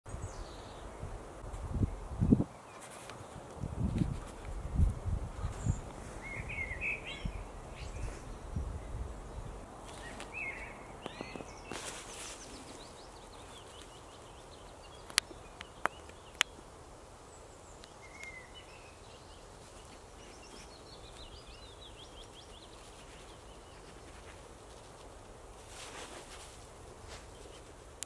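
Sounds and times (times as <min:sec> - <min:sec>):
rustle: 0:00.1 - 0:28.0
small birds chirping: 0:00.1 - 0:28.0
sharp clicks: 0:15.0 - 0:16.5.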